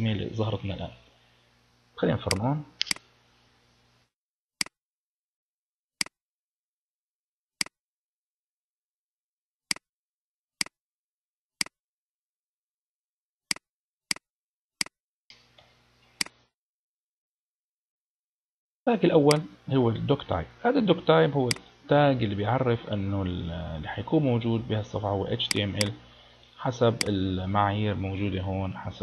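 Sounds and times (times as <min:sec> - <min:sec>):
keyboard and mouse clicks: 0:02.3 - 0:03.0.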